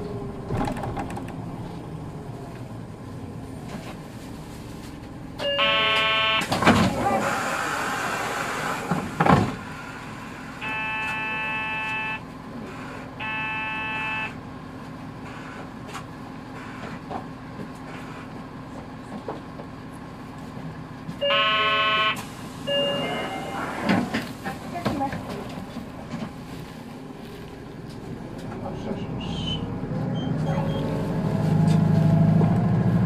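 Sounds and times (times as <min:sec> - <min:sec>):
bus drivetrain humming: 0:00.0 - 0:33.0
low buzzer tone: 0:05.4 - 0:06.5, 0:10.6 - 0:12.2, 0:13.2 - 0:14.4, 0:21.2 - 0:23.6
high beep: 0:21.2 - 0:23.6.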